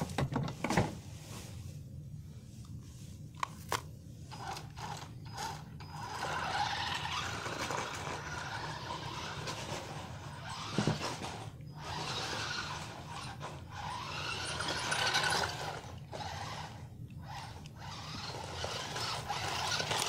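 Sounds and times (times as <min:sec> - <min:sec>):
toy car motors hissing: 0:04.4 - 0:20.0.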